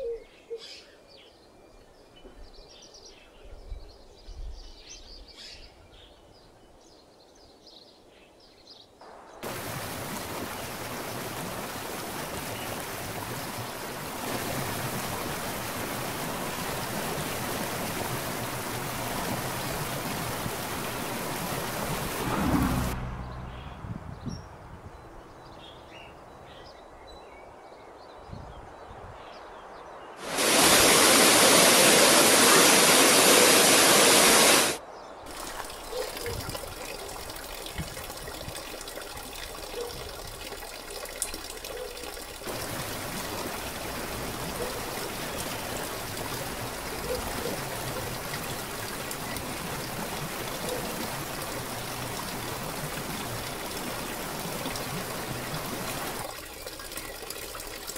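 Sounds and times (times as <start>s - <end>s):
water rushing: 9.0s - 23.3s, 30.2s - 57.9s
water trickling and splashing: 9.4s - 23.6s, 30.2s - 57.9s.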